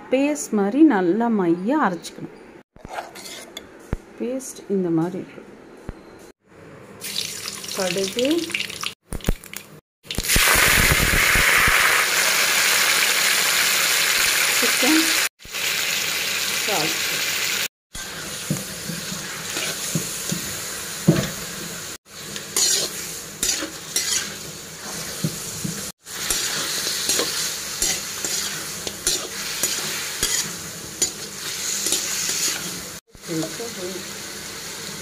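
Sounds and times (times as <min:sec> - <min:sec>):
metal spatula scraping pan: 0:02.8 - 0:03.6, 0:22.4 - 0:25.0, 0:26.3 - 0:32.8
chicken sizzling in hot oil: 0:07.0 - 0:35.0.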